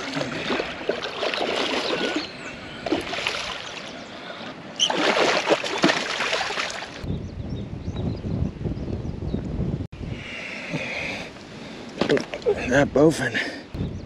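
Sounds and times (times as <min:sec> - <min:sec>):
fish thrashing and splashing: 0:00.0 - 0:03.9, 0:04.8 - 0:07.0.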